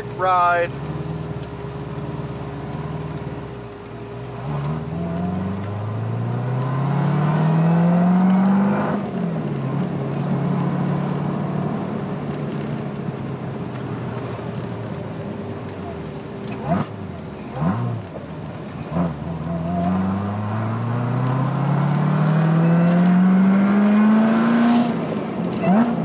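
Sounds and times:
car engine accelerating: 0.0 - 26.0.

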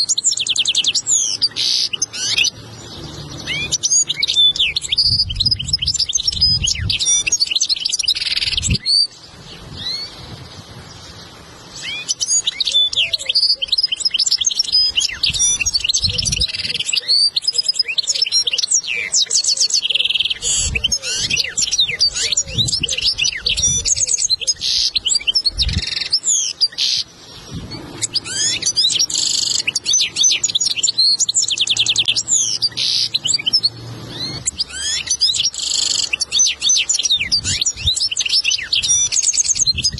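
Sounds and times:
bird twittering song: 0.0 - 39.9.

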